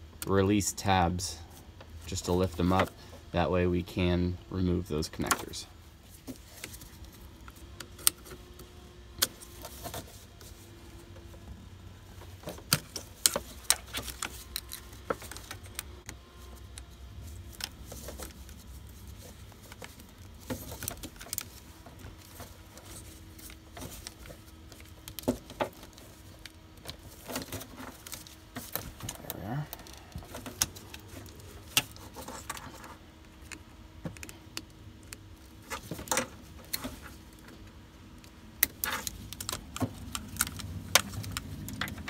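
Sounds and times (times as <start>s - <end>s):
faint steady hum: 0.0s - 42.0s
clicks and rattles of plastic tabs: 12.2s - 42.0s.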